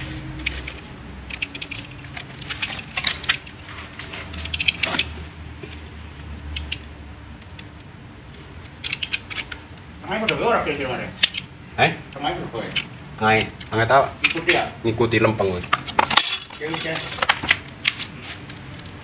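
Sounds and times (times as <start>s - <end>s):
plastic panels clicking and clattering: 15.6s - 18.1s.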